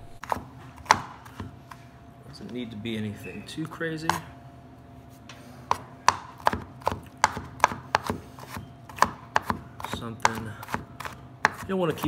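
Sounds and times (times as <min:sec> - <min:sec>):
knife chopping on wooden board: 0:00.1 - 0:01.8, 0:05.7 - 0:12.0.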